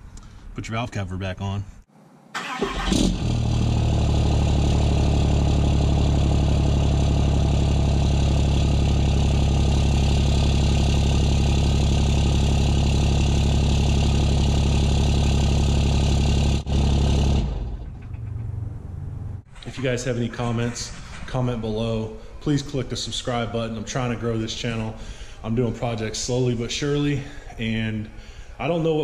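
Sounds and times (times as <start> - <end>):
diesel engine idling: 2.4 - 19.5.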